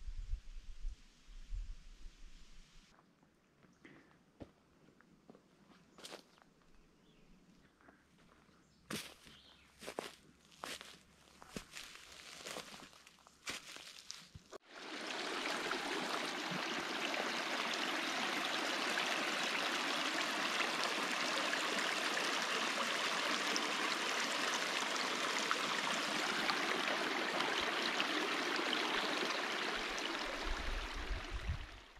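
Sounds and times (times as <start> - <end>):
stream trickling over rocks: 14.6 - 31.9.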